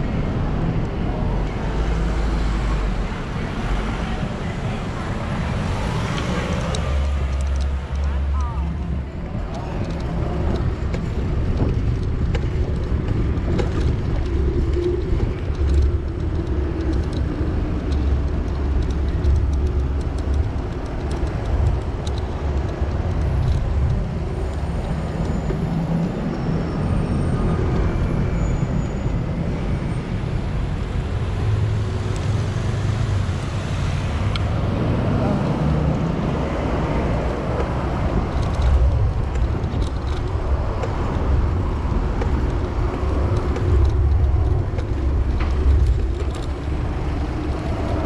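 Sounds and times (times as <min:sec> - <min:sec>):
vehicle rumble: 0:00.0 - 0:48.0
faint clicks and rattles: 0:06.1 - 0:25.8, 0:35.8 - 0:48.0.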